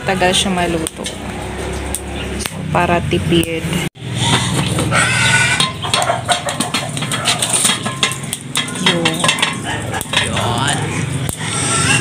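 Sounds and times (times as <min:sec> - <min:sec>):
pot and lid clattering: 0:05.5 - 0:10.8.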